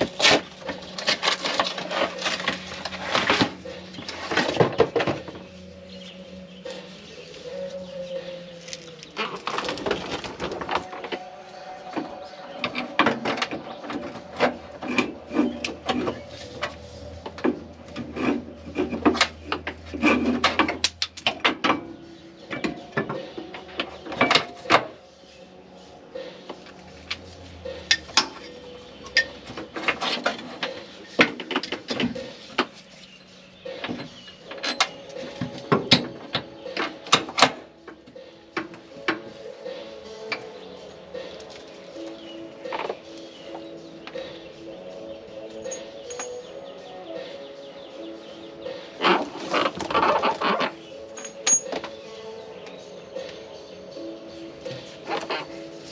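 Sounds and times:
rattling and rubbing of tools: 0:00.0 - 0:52.4, 0:54.4 - 0:55.9
metallic clicks and clanks: 0:12.6 - 0:21.9, 0:26.6 - 0:32.7, 0:33.8 - 0:37.7, 0:45.6 - 0:46.5, 0:49.0 - 0:52.0.

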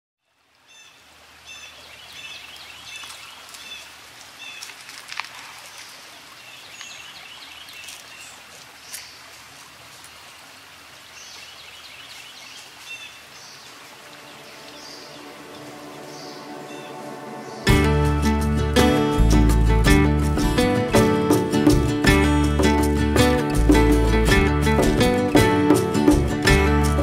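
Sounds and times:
birds chirping: 0:00.6 - 0:04.8, 0:05.7 - 0:09.3, 0:11.1 - 0:19.5.

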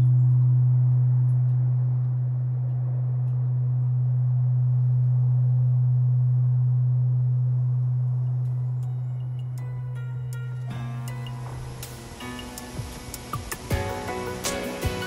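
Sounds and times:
deep temple bell hum: 0:00.0 - 0:12.6
higher bell overtone: 0:08.1 - 0:14.4.

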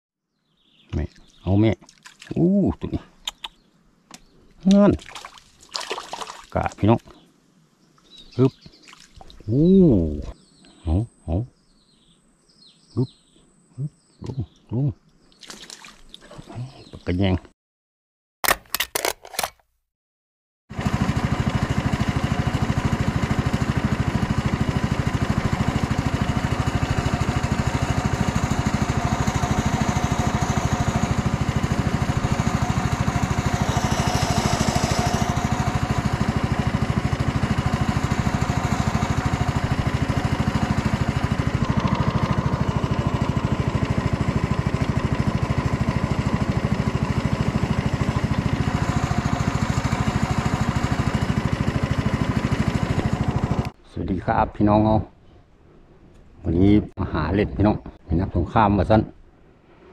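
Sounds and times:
small boat motor running: 0:20.7 - 0:53.8.

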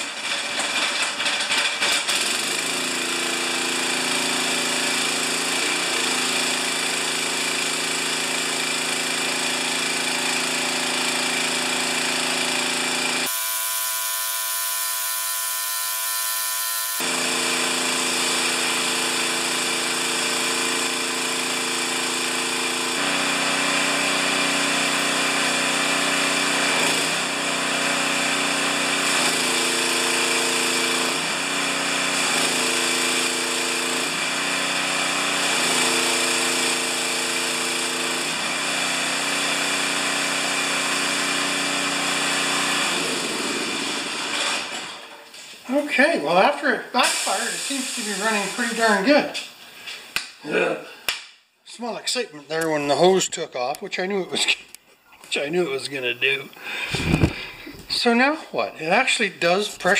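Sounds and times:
pressure washer engine running: 0:00.0 - 0:44.8, 0:45.8 - 0:49.5, 0:55.6 - 0:59.9
strong hiss: 0:47.0 - 0:49.0.

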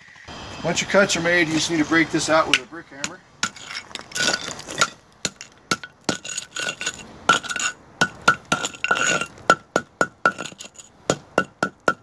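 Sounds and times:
hammer tapping on concrete: 0:04.8 - 0:12.0.

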